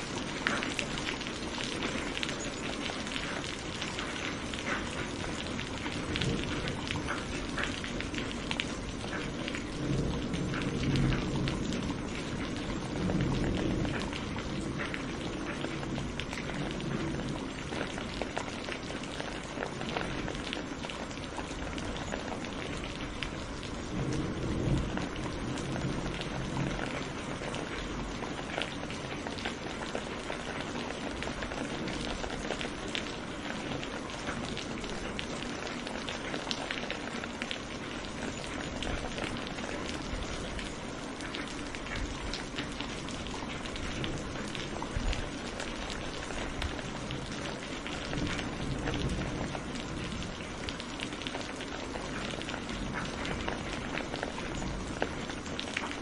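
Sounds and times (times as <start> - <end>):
raindrops ticking close by: 0.0 - 56.0
steady rain falling: 0.0 - 56.0.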